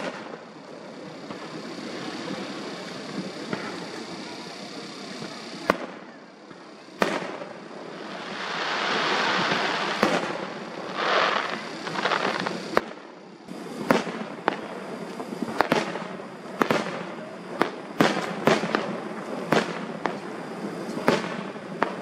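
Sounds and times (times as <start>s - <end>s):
firework bangs: 0.0s - 0.4s, 5.2s - 22.0s
hiss of burning stars: 0.0s - 22.0s.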